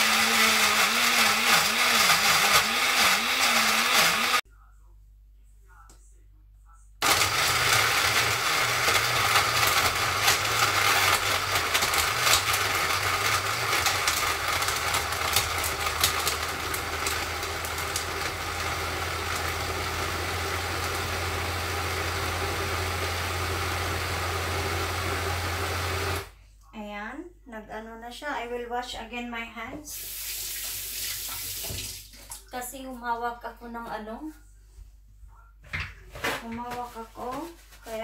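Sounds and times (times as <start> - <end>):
blender crushing ice: 0.0 - 4.4, 7.0 - 26.3.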